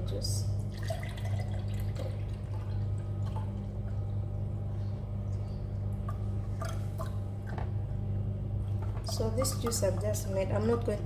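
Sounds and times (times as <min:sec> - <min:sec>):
steady low hum: 0:00.0 - 0:11.0
juice trickling into glass: 0:00.7 - 0:04.2.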